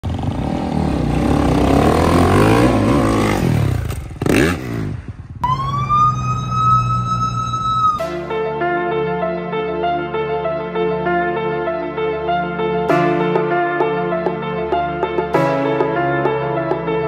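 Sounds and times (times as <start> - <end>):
dirt bike engines revving: 0.0 - 7.4
steady high tone: 5.4 - 11.0
music: 5.4 - 17.0.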